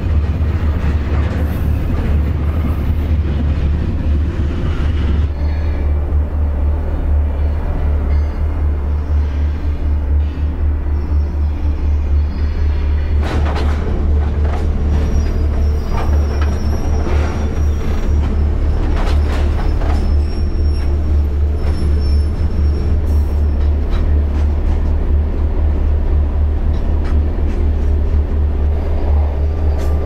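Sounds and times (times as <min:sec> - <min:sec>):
freight train low rumble: 0:00.0 - 0:30.0
faint high wheel squeal: 0:07.9 - 0:10.3, 0:15.0 - 0:23.7.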